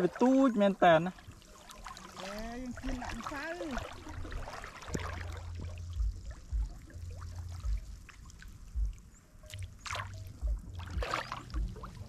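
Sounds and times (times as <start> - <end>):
water trickling and splashing: 0.0 - 12.0
dull low thumps: 2.6 - 12.0.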